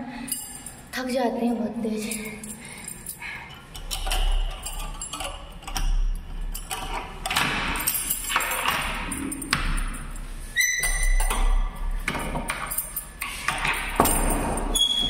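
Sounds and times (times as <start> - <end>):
keys jangling against padlock: 0.1 - 0.9, 2.0 - 15.0
metallic clinks and knocks: 0.1 - 1.0, 2.0 - 15.0.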